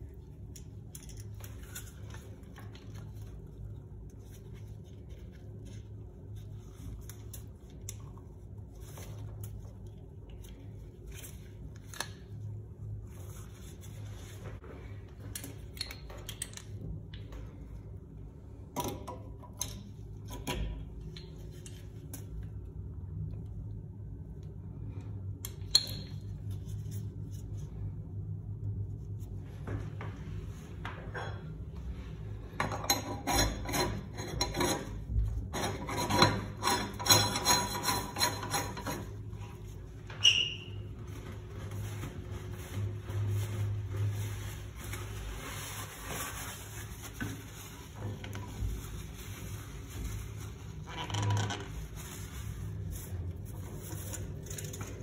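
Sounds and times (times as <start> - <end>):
metal-on-metal rubbing: 32.8 - 39.2.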